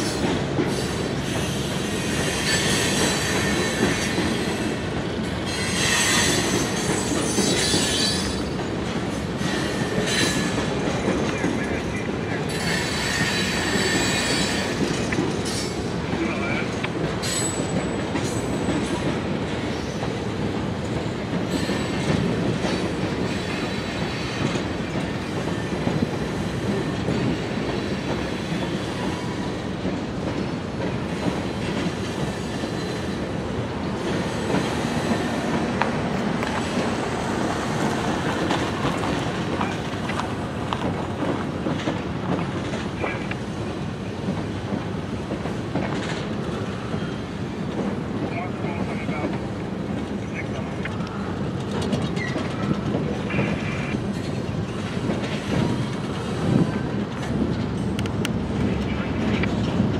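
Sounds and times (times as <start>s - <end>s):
train wheels rumbling on rail: 0.0s - 59.9s
wheels clicking over rail joints: 34.0s - 59.9s.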